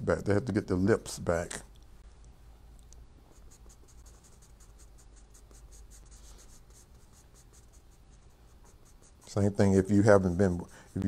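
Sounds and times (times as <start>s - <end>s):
pencil scratching on paper: 3.3s - 11.0s.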